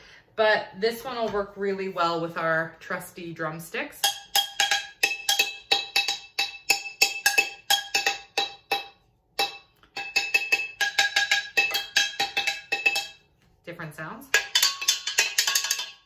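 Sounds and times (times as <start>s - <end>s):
metal pot beaten with drumstick: 4.0s - 13.3s, 14.3s - 16.0s.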